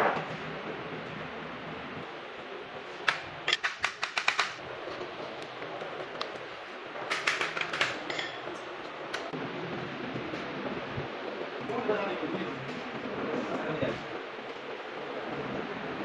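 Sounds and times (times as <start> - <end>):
pins being tapped into panel: 3.5 - 4.6.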